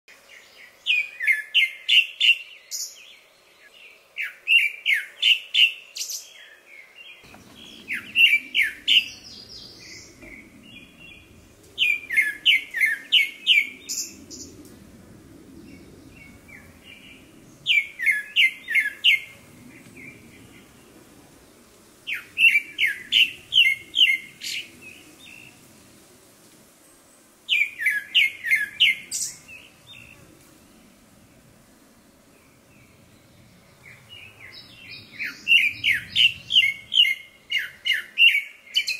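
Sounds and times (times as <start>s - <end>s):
thrush singing whistled notes: 7.3s - 14.6s, 15.7s - 19.3s, 22.1s - 25.5s, 27.5s - 30.2s, 32.8s - 38.9s.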